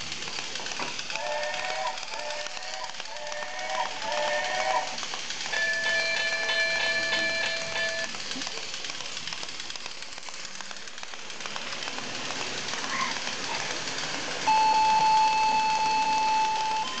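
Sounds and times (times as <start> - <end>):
toy train wheels clicking: 0.0 - 17.0
high electronic tone: 14.5 - 17.0.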